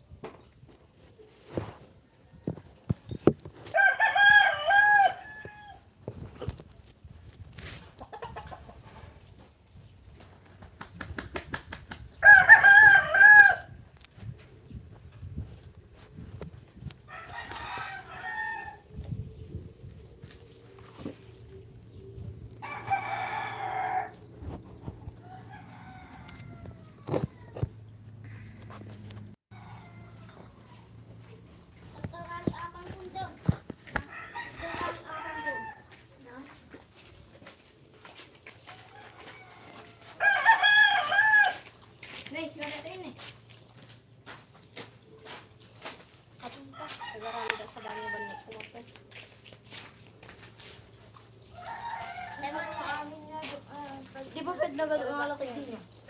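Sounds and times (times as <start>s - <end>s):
rooster crowing: 3.7s - 5.8s, 12.2s - 13.8s, 17.1s - 18.8s, 22.6s - 24.2s, 25.2s - 27.6s, 29.5s - 30.9s, 34.0s - 35.9s, 38.6s - 41.7s, 46.8s - 48.5s, 51.4s - 53.0s.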